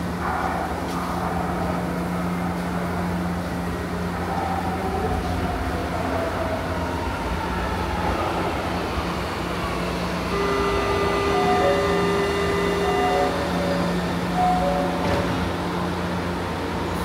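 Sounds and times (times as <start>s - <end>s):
metro train electrical hum: 0.0s - 17.0s.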